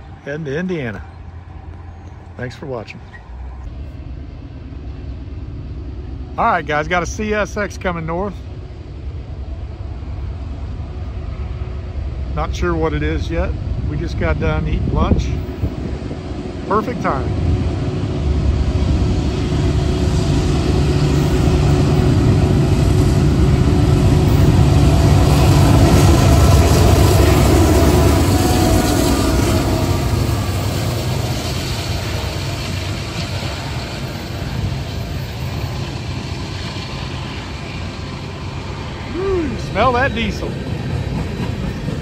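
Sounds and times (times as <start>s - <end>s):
diesel locomotive engines: 0.0s - 42.0s
train cars rolling past: 0.0s - 42.0s.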